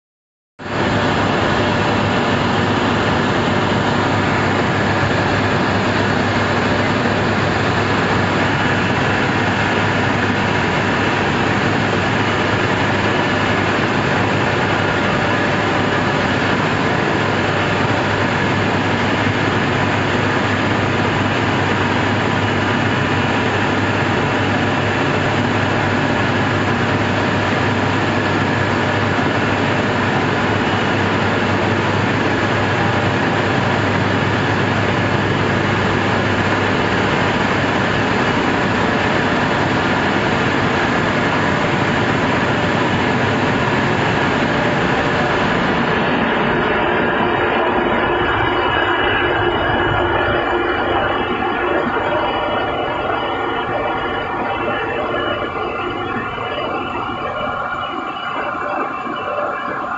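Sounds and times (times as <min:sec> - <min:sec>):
milling machinery running: 0:00.7 - 0:59.9.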